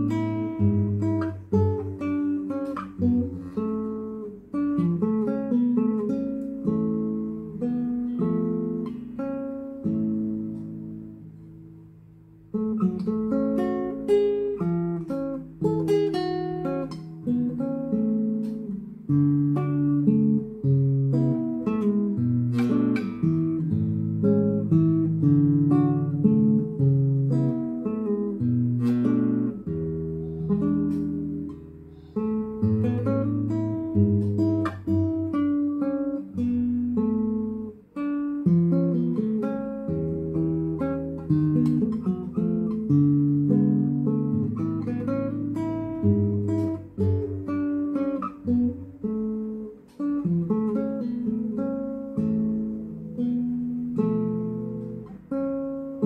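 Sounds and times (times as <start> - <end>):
classical guitar lullaby: 0.0 - 56.0.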